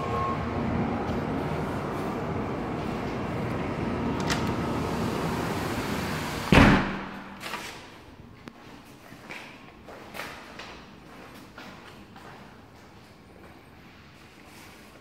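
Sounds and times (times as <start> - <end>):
loud thump: 6.5 - 7.4.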